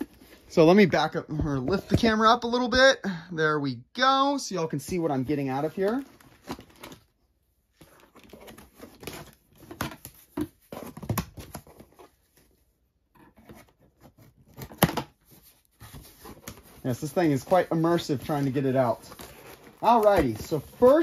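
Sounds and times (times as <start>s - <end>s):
cardboard rustling and scraping: 7.7s - 21.0s.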